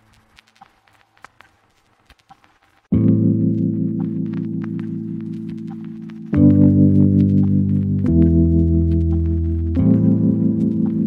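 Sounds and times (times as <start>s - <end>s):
ambient chords music: 3.0s - 11.0s.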